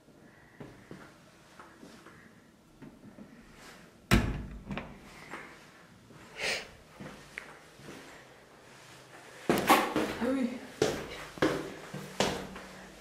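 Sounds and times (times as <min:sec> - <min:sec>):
knocks and scuffs: 0:09.5 - 0:12.8.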